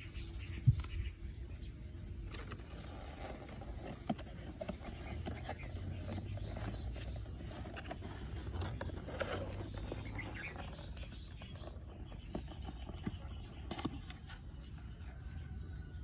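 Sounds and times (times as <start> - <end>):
low steady rumble: 0.0 - 16.0
cardboard box scraping on dirt: 2.1 - 14.7.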